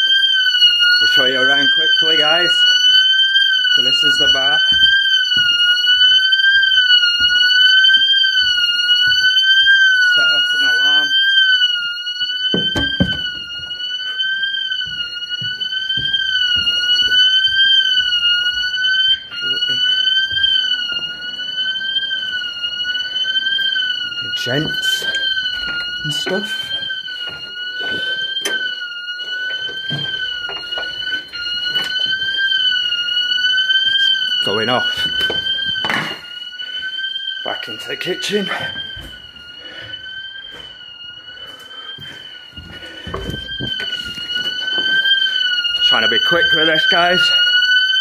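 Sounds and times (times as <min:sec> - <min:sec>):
electronic alarm wavering tone: 0:00.0 - 0:48.0
knocks: 0:12.5 - 0:13.4.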